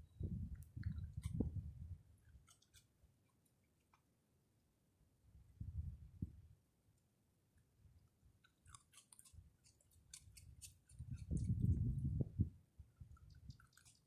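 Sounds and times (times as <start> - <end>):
animal chewing popcorn: 2.3 - 2.9, 8.4 - 11.8, 13.0 - 14.0.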